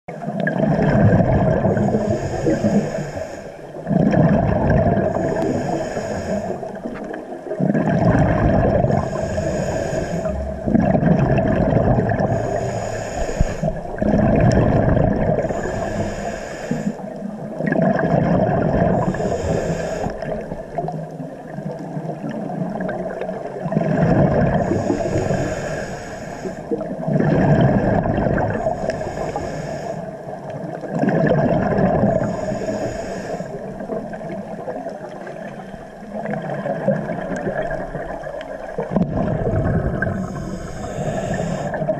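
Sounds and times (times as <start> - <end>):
exhaust bubbles underwater: 0.1 - 41.9
regulator breathing hiss: 1.8 - 3.8, 5.1 - 6.8, 8.9 - 10.6, 12.3 - 14.0, 15.5 - 17.1, 19.0 - 20.8, 24.6 - 26.8, 28.8 - 30.2, 32.2 - 33.8, 40.2 - 41.9
steady hum: 39.4 - 41.9.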